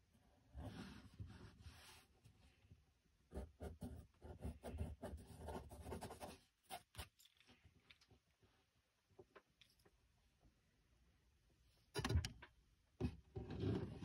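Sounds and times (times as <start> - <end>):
pencil scratching on paper: 3.3 - 7.2.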